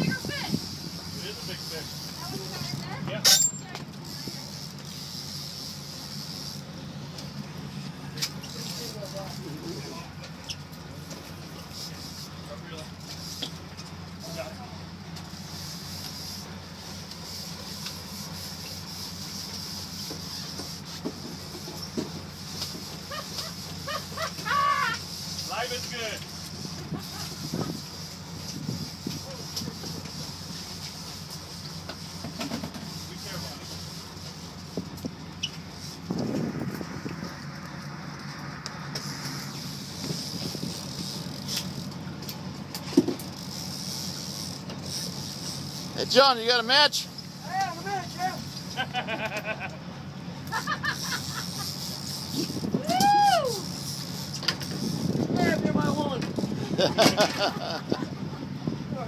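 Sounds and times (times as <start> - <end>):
boat engines droning: 0.0 - 59.0
wind and water hiss: 0.0 - 59.0
hiss of wind and water: 24.7 - 47.4.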